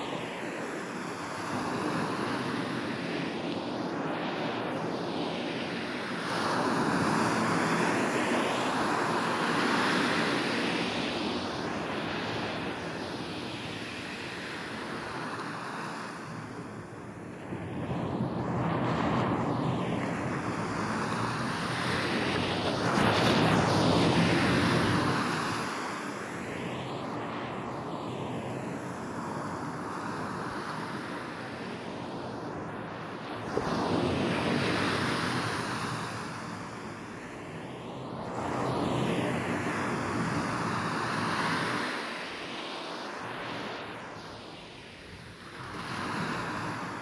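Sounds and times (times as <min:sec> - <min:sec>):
waves breaking on beach: 0:45.4 - 0:47.0.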